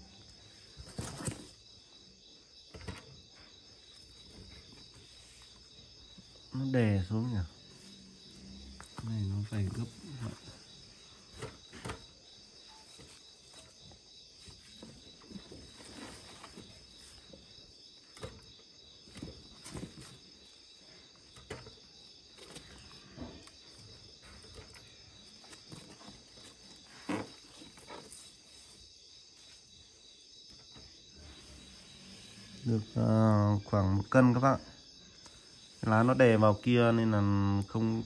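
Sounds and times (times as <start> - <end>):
crickets chirring: 0.0 - 38.0
leaves rustling: 12.8 - 17.3.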